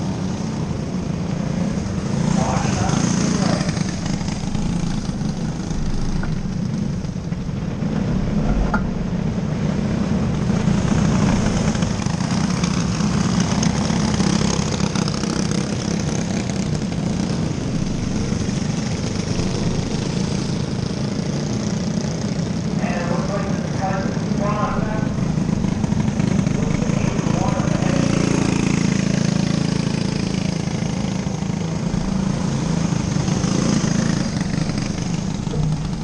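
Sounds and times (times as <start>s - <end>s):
race car engines droning: 0.0s - 36.0s.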